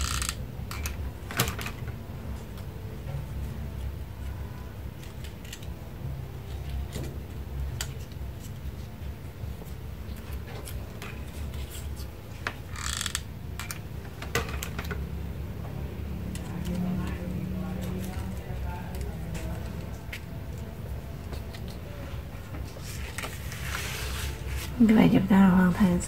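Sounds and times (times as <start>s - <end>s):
low steady hum: 0.0s - 26.0s
paper rustling: 17.9s - 25.0s.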